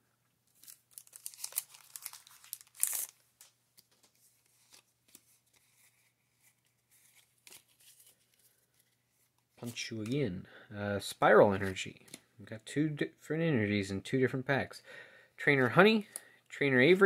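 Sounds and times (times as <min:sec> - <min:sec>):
packaging crinkling: 0:00.5 - 0:05.6.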